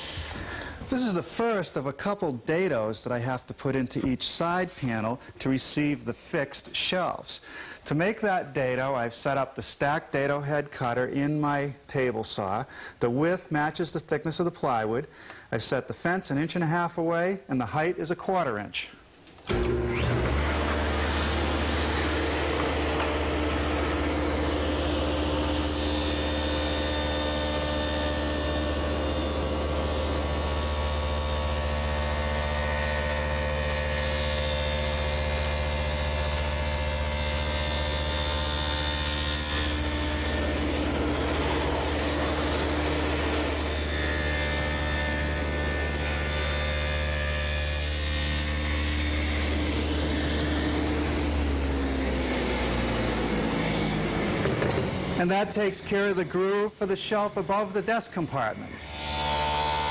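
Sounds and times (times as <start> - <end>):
table saw cutting plywood: 0.0 - 0.6, 19.5 - 56.7, 58.7 - 59.9.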